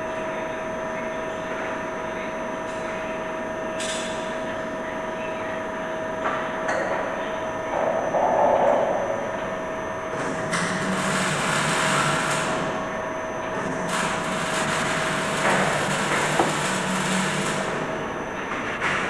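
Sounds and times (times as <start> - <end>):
machine gear-motor running: 10.1 - 12.8, 13.5 - 18.1.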